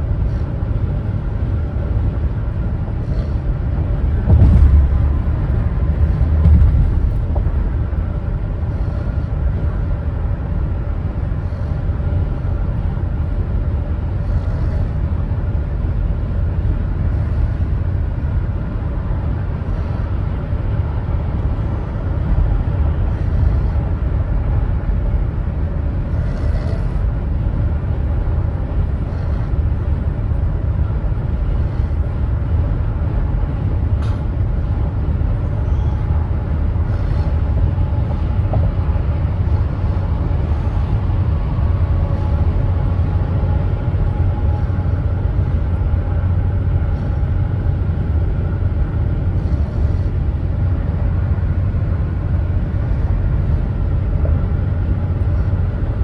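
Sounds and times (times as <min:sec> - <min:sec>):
vehicle road and engine rumble: 0:00.0 - 0:56.0
loud vehicle bumps: 0:04.0 - 0:08.9.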